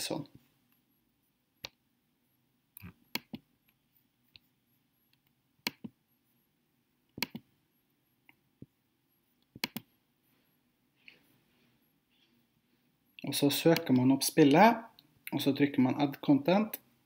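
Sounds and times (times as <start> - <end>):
computer mouse clicks: 2.8 - 3.8, 5.1 - 6.0, 7.1 - 7.5, 9.4 - 9.9.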